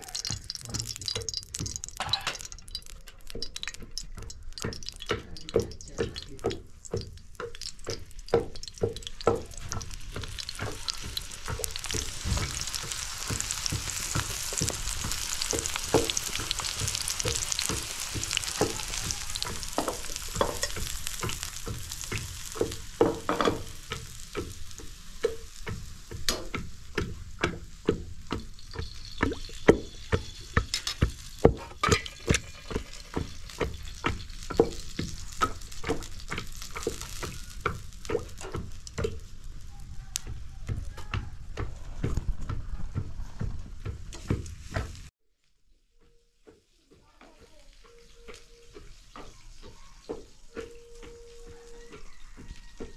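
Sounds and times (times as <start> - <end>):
knocks and clicks: 0.0 - 39.3
eggplant sizzling in oil: 0.0 - 43.1, 43.7 - 45.1, 45.7 - 52.9.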